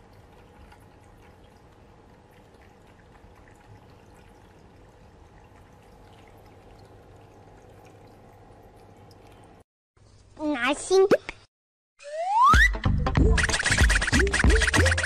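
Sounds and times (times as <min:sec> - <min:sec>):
cat lapping water: 0:00.0 - 0:09.6
low steady hum: 0:00.0 - 0:09.6
water trickling from fountain: 0:00.0 - 0:09.6.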